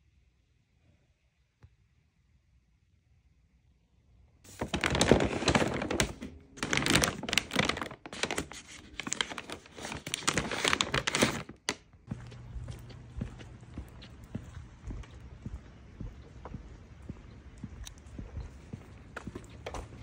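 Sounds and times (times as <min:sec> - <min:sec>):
paper bag crinkling: 0:04.5 - 0:14.1.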